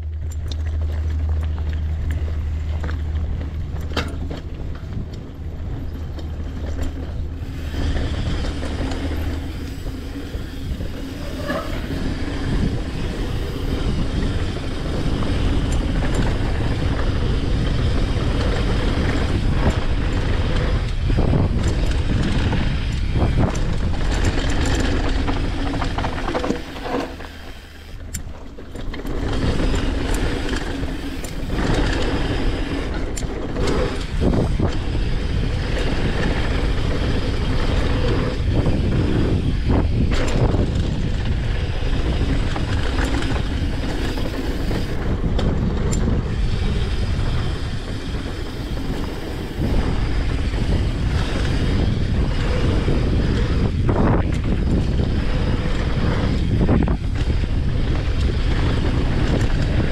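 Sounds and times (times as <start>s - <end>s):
bike clicks and rattles: 0.0s - 59.9s
bike tyres rushing over gravel: 0.0s - 59.9s.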